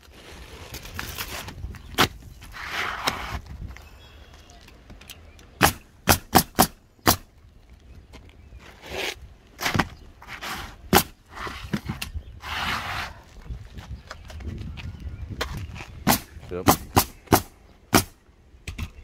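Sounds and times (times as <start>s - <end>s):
shingles scraping: 0.0s - 3.6s, 8.6s - 13.3s
pneumatic nailer firing nails: 5.6s - 7.3s, 16.1s - 18.2s.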